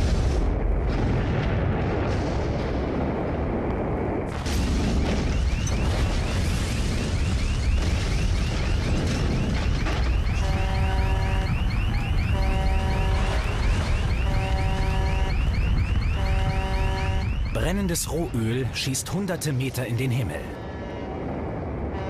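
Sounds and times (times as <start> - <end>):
deep rumble of blast and fire: 0.0 - 18.3, 20.6 - 22.0
rapid rising whoop alarm: 6.9 - 18.0
horn-like alarm tone: 9.3 - 18.8, 20.2 - 22.0.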